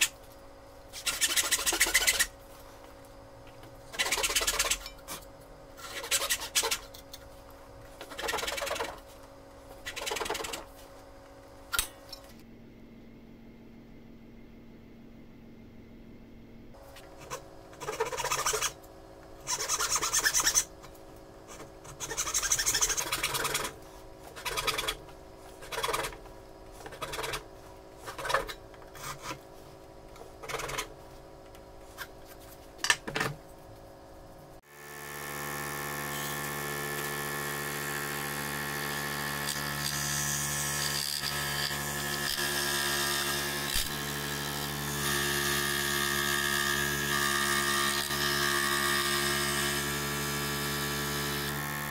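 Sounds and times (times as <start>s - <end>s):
hand saw rasping through wood: 5.8s - 6.9s, 17.2s - 18.8s, 19.5s - 20.7s, 21.5s - 25.0s
scroll saw motor humming: 5.8s - 6.9s, 16.8s - 18.8s, 19.4s - 20.7s, 21.5s - 29.4s.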